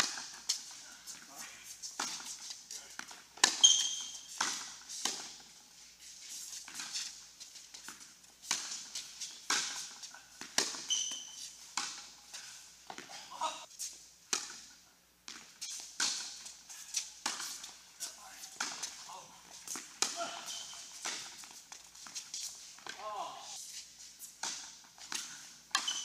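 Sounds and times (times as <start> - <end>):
tennis balls struck and bouncing: 0.0 - 1.3, 1.9 - 5.6, 6.6 - 12.2, 12.8 - 13.5, 14.3 - 23.4, 24.3 - 26.0
short high squeaks: 3.5 - 4.4, 10.8 - 11.6, 20.4 - 21.0, 25.8 - 26.0.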